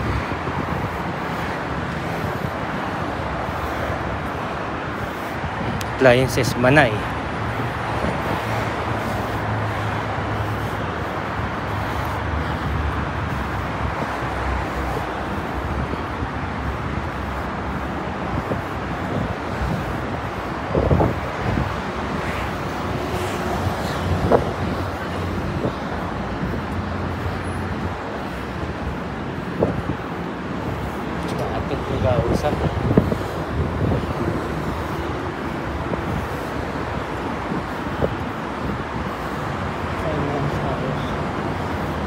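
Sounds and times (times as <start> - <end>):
passing cars: 0.0 - 42.0.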